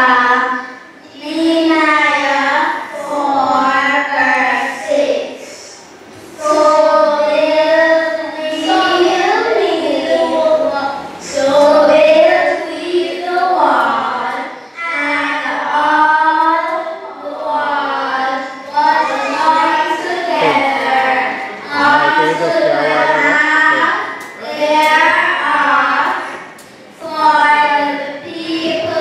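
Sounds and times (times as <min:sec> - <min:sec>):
girls singing together: 0:00.0 - 0:29.0
girl singing into a microphone: 0:18.6 - 0:29.0.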